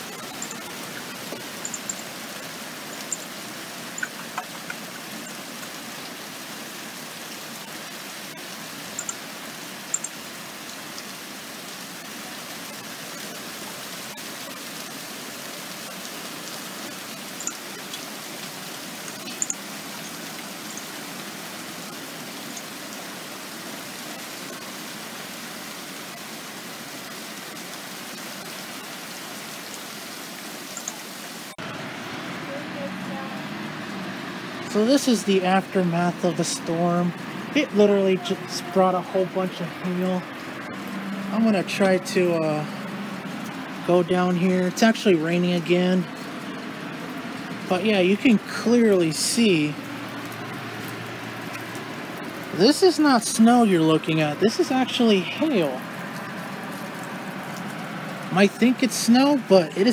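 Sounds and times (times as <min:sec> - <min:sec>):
steady rain hiss: 0:00.0 - 0:59.9
sharp ticks on hard surface: 0:01.6 - 0:02.1, 0:09.0 - 0:09.2.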